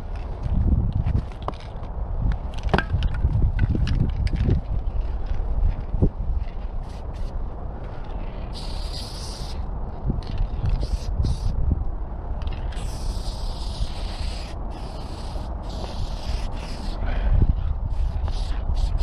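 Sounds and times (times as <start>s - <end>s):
wind rumble on microphone: 0.0s - 19.0s
spray paint can hissing: 6.8s - 7.3s, 8.4s - 9.6s, 10.2s - 11.6s, 12.4s - 17.0s, 17.9s - 19.0s.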